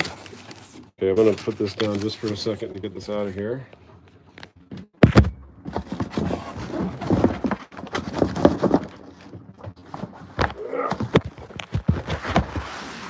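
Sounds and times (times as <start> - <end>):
cardboard box knocks and scrapes: 5.0 - 13.0.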